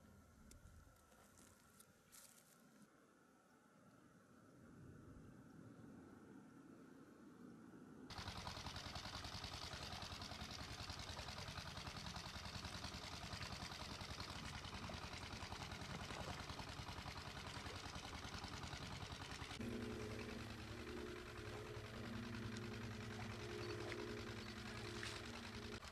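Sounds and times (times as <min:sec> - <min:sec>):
low-pitched engine hum: 0:00.0 - 0:25.9
small engine chugging: 0:08.1 - 0:25.9.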